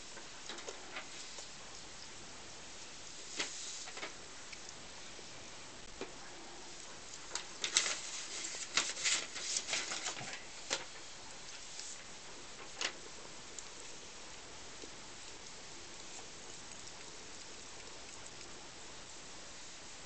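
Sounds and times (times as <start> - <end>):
faint steady hiss: 0.0 - 20.0
hedgehogs lapping milk: 6.2 - 19.8.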